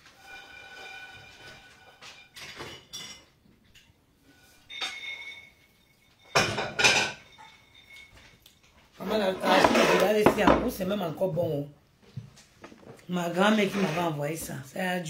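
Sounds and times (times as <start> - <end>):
dishes and cutlery clinking: 2.3 - 3.9, 4.6 - 10.8
dishes clattering: 2.4 - 3.4, 6.2 - 8.4, 9.0 - 10.9.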